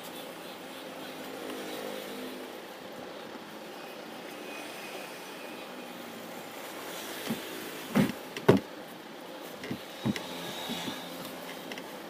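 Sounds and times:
seat cover rustling and thumping: 0:07.3 - 0:08.7.

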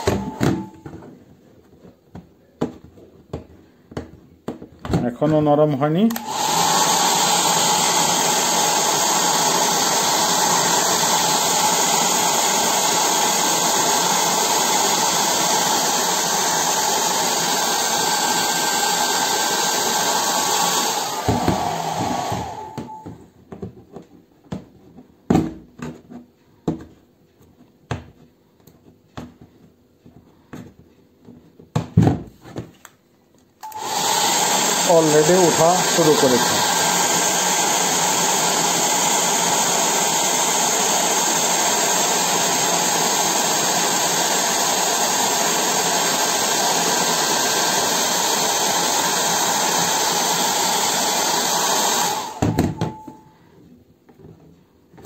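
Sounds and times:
hair dryer whining: 0:00.0 - 0:01.0, 0:05.9 - 0:23.2, 0:33.6 - 0:53.3.

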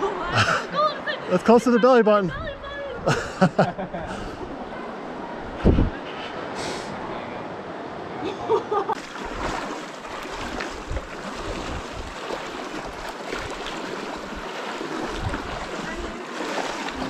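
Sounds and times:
wind on microphone: 0:05.4 - 0:06.1, 0:10.2 - 0:17.0
rushing river water: 0:08.9 - 0:17.0
water splashing from wading: 0:08.9 - 0:17.0.

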